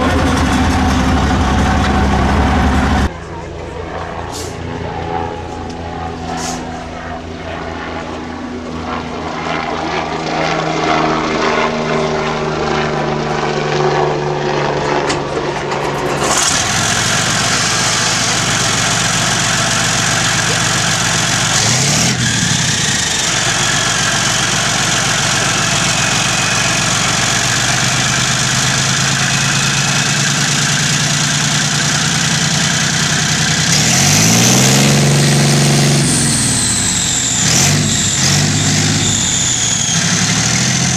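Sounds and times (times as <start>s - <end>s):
tank diesel engine starting and revving: 0.0s - 3.1s, 15.4s - 40.9s.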